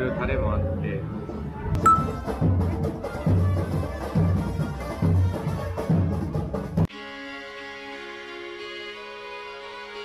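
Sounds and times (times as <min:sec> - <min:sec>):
carnival drum group playing: 0:01.8 - 0:06.9.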